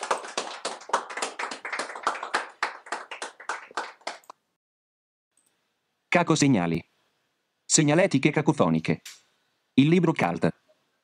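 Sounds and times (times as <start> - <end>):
hand clapping: 0.0 - 4.4.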